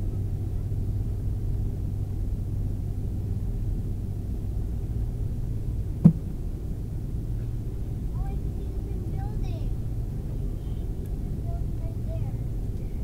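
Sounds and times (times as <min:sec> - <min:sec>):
airliner cabin rumble: 0:00.0 - 0:13.0
sharp thump: 0:06.0 - 0:06.3.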